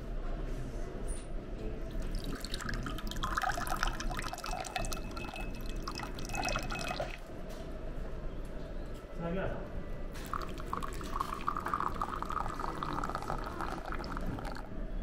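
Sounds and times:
liquid pouring into a glass: 1.9 - 7.3, 10.2 - 14.7.

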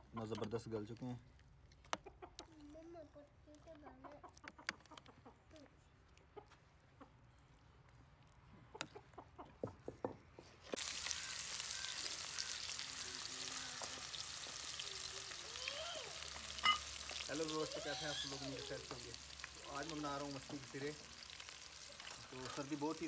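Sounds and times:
onions sizzling in hot oil: 10.7 - 23.0.

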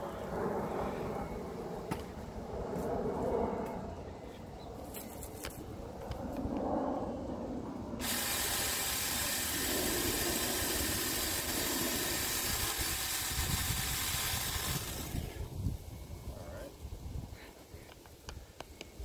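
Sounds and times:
mini chainsaw cutting branch: 8.0 - 15.5.

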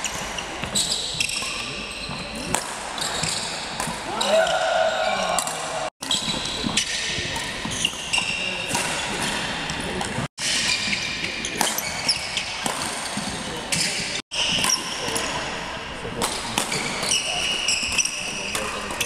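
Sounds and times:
shoe squeaks on hall floor: 0.0 - 4.3, 6.0 - 8.8, 10.4 - 15.2, 16.7 - 19.0
rackets hitting shuttlecock: 0.1 - 4.6, 5.2 - 15.5, 16.2 - 19.0
voices in echoing hall: 0.6 - 19.0.

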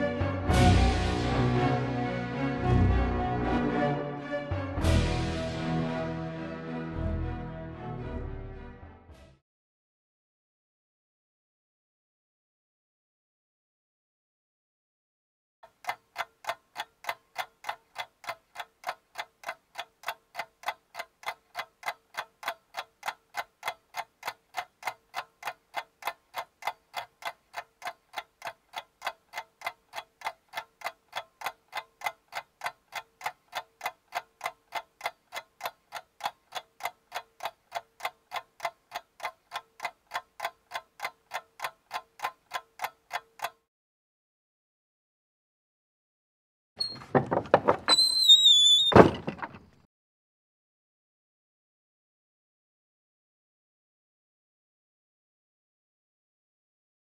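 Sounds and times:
clock-like ticking: 15.6 - 43.7.

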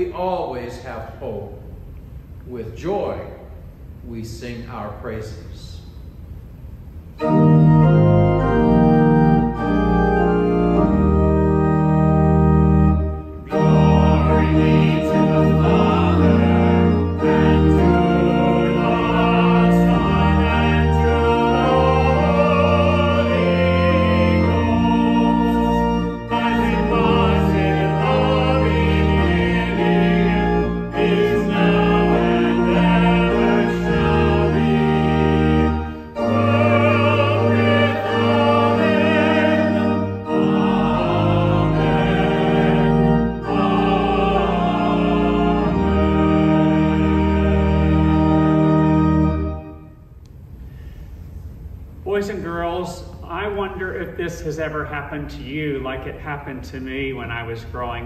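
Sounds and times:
church organ playing a hymn: 0.0 - 1.6, 7.2 - 50.2.

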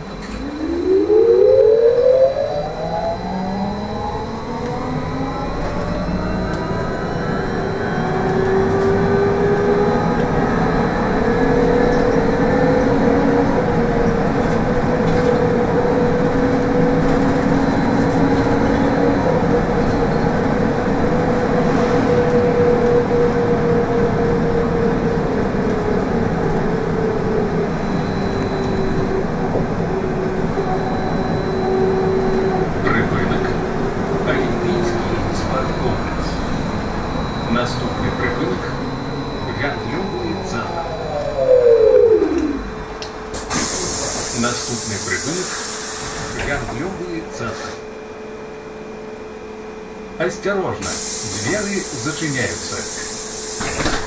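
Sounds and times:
electric drive whining: 0.0 - 21.3, 22.2 - 43.5
road and tyre noise: 0.0 - 47.8.

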